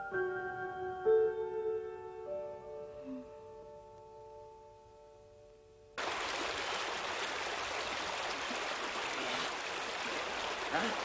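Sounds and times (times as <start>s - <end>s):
waterfall rushing: 6.0s - 11.0s.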